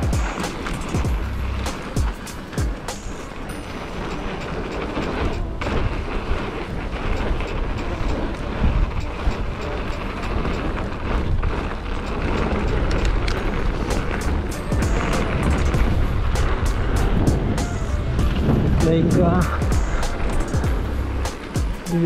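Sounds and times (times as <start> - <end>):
bike rattling over ground: 0.0 - 22.0
bike tyres rolling on dirt: 0.0 - 22.0.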